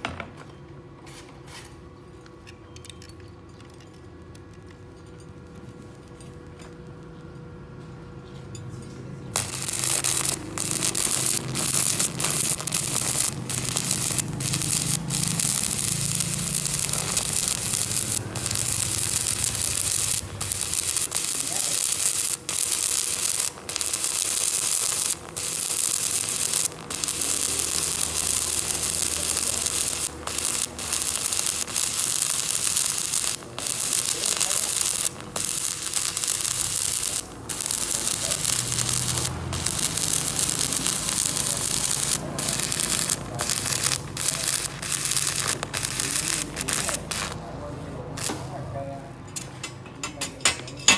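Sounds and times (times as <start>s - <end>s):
welding arc crackling: 9.3s - 47.4s, 48.1s - 48.6s.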